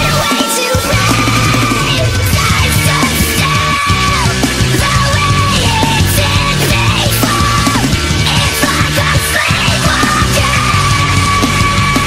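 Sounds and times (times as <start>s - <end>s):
sped-up pitched-up rock music: 0.0s - 12.0s.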